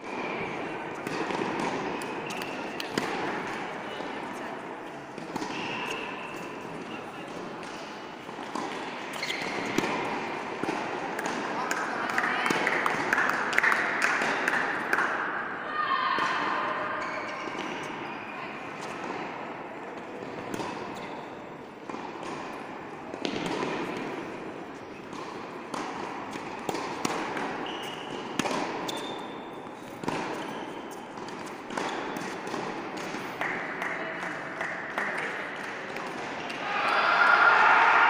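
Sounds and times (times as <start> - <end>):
tennis ball hit and bouncing: 0.1 - 4.4, 5.1 - 15.2, 20.0 - 36.6.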